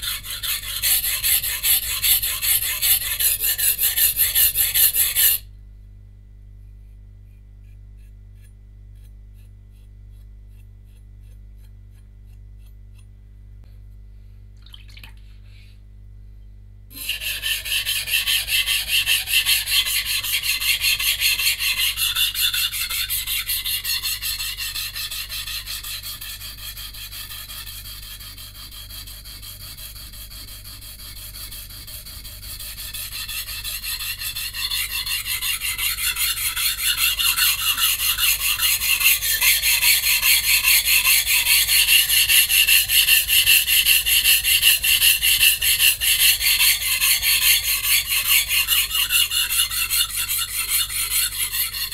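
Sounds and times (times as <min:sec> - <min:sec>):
knife blade on whetstone: 0:00.0 - 0:05.4, 0:17.0 - 0:51.9.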